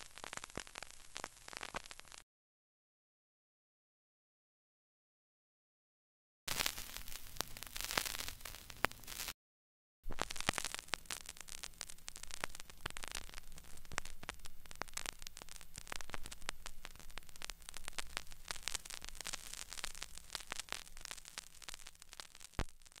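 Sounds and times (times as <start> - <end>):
crackling static with clicks: 0.0 - 2.2, 6.5 - 9.4, 10.0 - 23.0.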